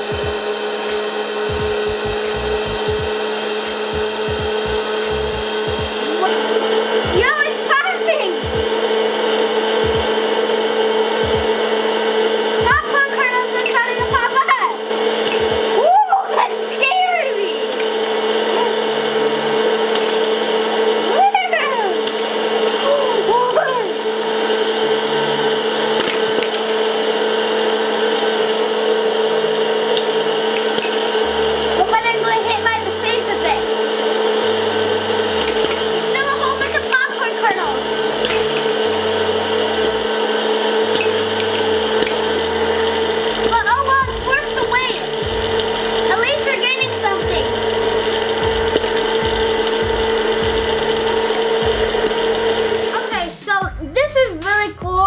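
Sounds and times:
hot air blowing: 0.0s - 54.2s
popcorn popper fan humming: 0.0s - 55.0s
popcorn kernels popping: 40.9s - 52.9s.

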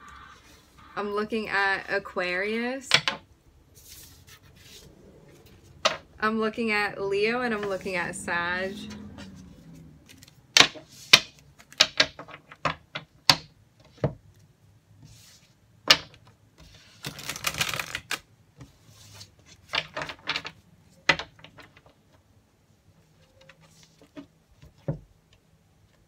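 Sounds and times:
cards shuffled on wooden table: 9.2s - 12.5s, 15.0s - 20.5s.

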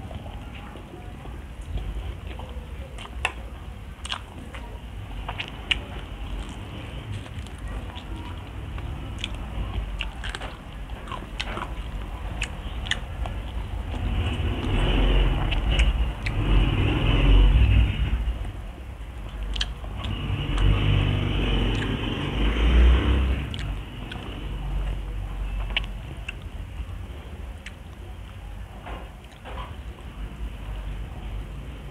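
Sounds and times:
close chewing of food: 0.0s - 31.9s
wet mouth clicks: 5.3s - 16.6s, 19.3s - 21.0s, 21.6s - 22.4s, 23.4s - 26.6s.

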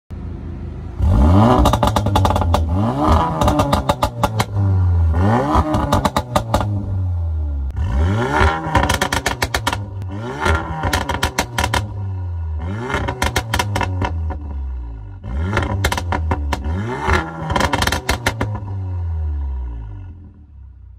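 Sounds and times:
car engine idling and revving: 0.1s - 20.9s
exhaust pops and crackles: 1.6s - 4.6s, 5.5s - 6.8s, 8.4s - 12.0s, 12.9s - 14.5s, 15.5s - 18.8s.

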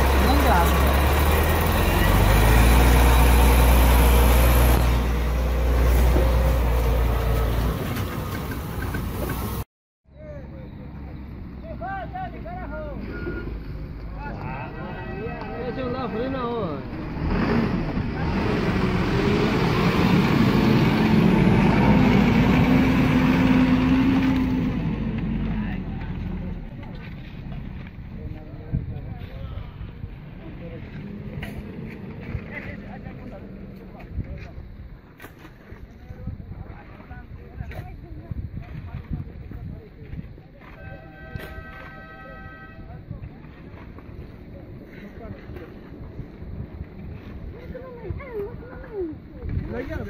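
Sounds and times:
truck diesel engine driving past: 0.0s - 9.6s, 16.5s - 26.8s
truck diesel engine running: 0.0s - 9.6s.

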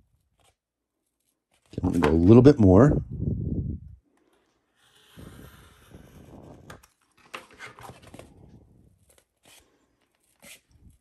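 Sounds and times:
board being handled: 1.7s - 2.5s.

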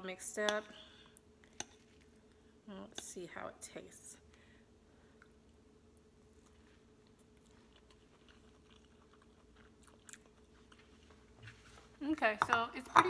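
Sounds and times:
faint steady hum: 0.0s - 13.0s
faint chewing: 6.2s - 12.0s.

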